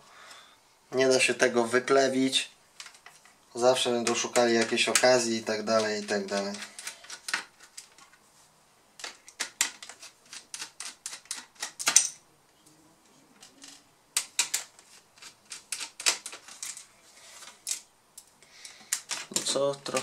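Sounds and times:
screwdriver clicking and scraping: 0:05.8 - 0:08.1, 0:09.0 - 0:12.1.

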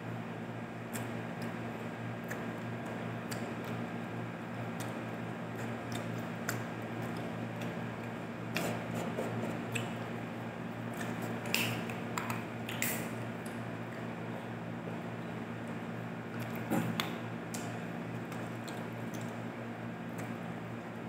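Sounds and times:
lip smacks and chewing: 0:00.9 - 0:01.6, 0:02.2 - 0:03.8, 0:04.7 - 0:10.2, 0:10.9 - 0:14.4, 0:15.6 - 0:19.4, 0:20.1 - 0:20.5.

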